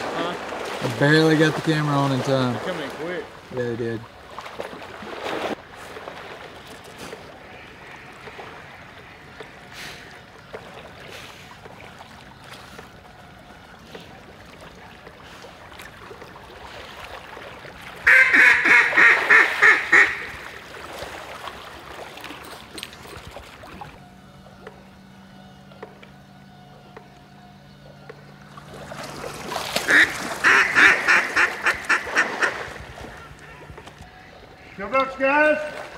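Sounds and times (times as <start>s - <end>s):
water sloshing and trickling: 0.0s - 35.9s
duck call quacks: 18.1s - 20.3s, 29.9s - 32.6s.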